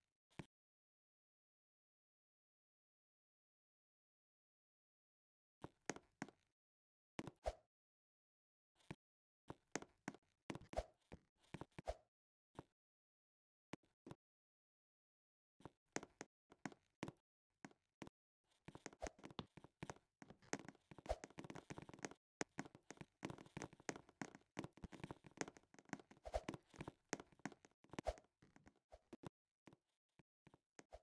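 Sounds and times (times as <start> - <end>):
faint irregular taps and knocks: 8.8 - 11.9, 15.6 - 31.0.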